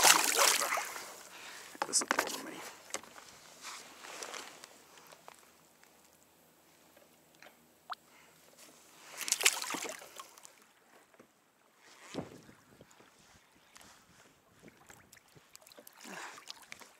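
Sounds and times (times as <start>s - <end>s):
fish splashing into water: 0.0s - 1.0s, 9.2s - 10.5s.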